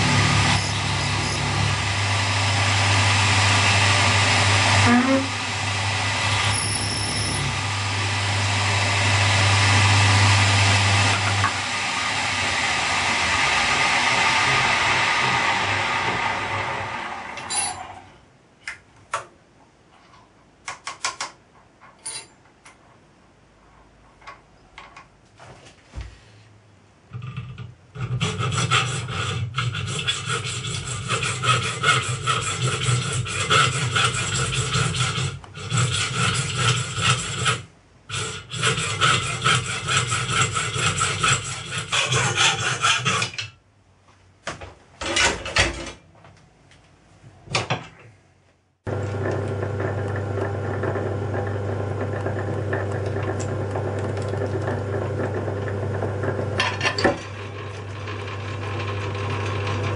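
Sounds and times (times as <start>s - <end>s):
hacksaw cutting brass: 28.0s - 43.5s.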